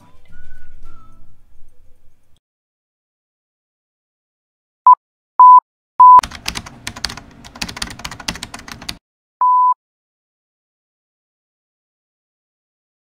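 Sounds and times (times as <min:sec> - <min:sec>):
keyboard typing clicks: 0:06.1 - 0:09.0.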